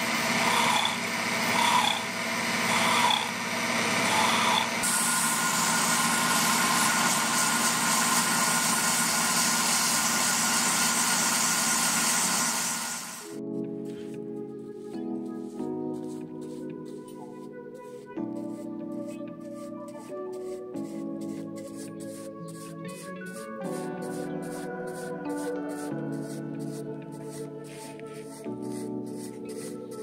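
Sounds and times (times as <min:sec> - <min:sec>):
wood lathe humming: 0:00.0 - 0:13.3
sanding hiss on spinning wood: 0:00.0 - 0:13.4, 0:17.9 - 0:30.0
hand tool scraping spinning wood: 0:00.1 - 0:13.3.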